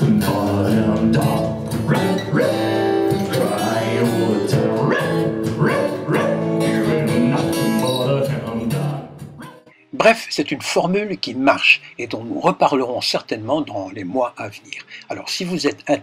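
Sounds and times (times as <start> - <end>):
man singing into a microphone: 0.0 - 6.0, 6.7 - 9.2
acoustic guitar strumming: 0.0 - 9.8.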